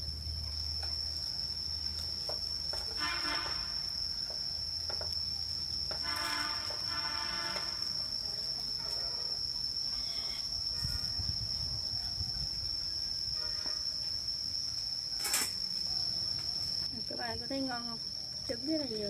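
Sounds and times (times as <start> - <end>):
high-pitched insect drone: 0.0 - 19.0.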